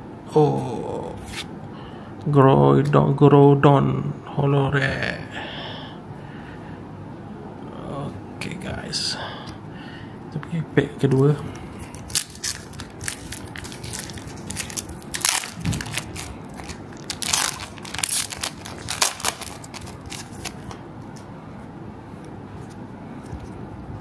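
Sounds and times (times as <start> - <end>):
foil wrapper crinkling: 11.8 - 20.7.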